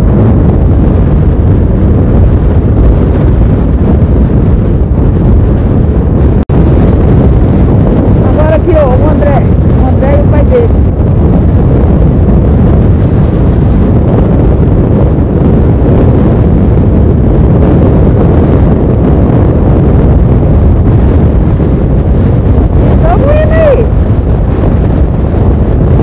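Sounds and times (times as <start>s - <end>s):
motorcycle running: 0.0s - 26.0s
wind buffeting microphone: 0.0s - 26.0s.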